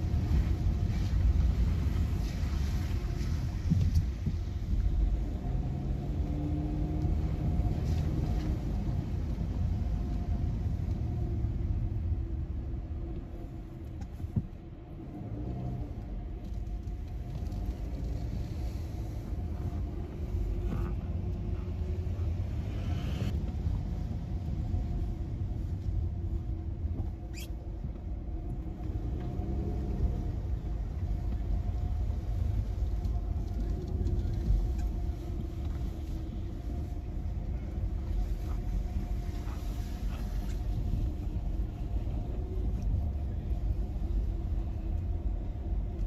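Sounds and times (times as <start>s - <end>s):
engine and road rumble: 0.0s - 46.0s
short high squeak: 27.3s - 27.5s.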